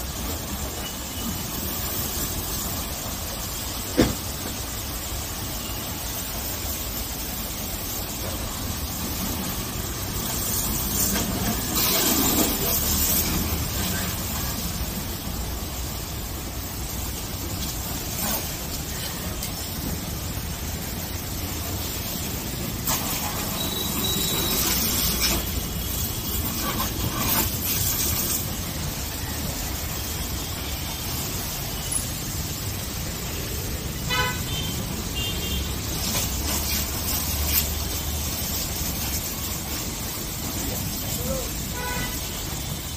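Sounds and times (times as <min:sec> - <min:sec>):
pressure washer spraying car: 0:00.0 - 0:42.9
car horn toot: 0:34.1 - 0:35.7, 0:41.7 - 0:42.3.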